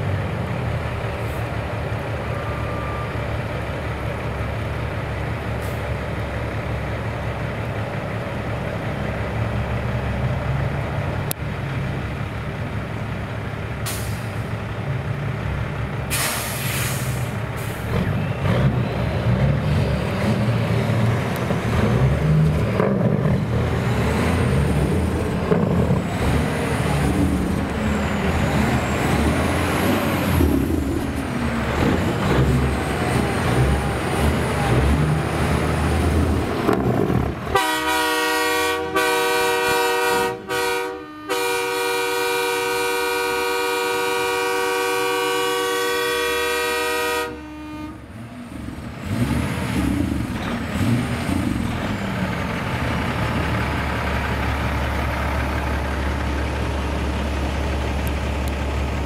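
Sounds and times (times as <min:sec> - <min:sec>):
truck diesel engines running: 0:00.0 - 0:59.0
train horn chord: 0:37.5 - 0:48.0.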